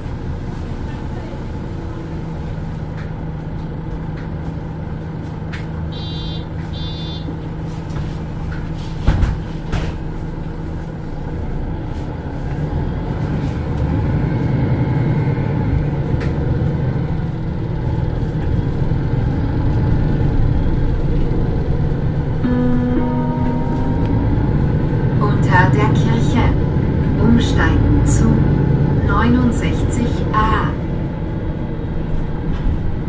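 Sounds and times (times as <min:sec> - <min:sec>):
bus diesel engine drone: 0:00.0 - 0:33.0
short electronic beeps: 0:06.0 - 0:07.3.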